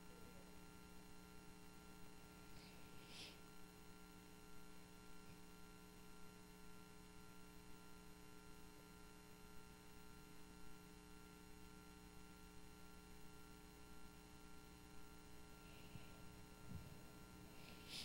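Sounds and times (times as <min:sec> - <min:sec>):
faint electrical mains hum: 0:00.0 - 0:18.0
faint hiss: 0:02.3 - 0:03.7, 0:15.6 - 0:18.0.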